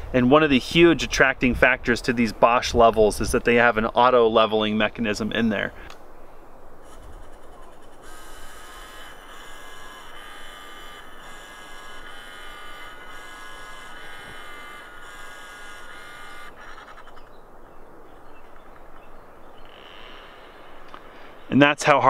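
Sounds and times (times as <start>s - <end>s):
laser level whining tones: 6.8s - 17.3s.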